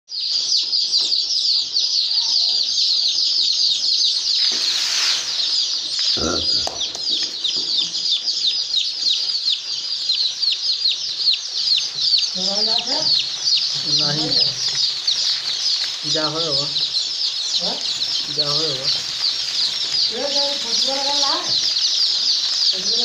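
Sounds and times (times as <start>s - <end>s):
chicks peeping: 0.1s - 23.0s
brief rustle: 4.4s - 5.6s.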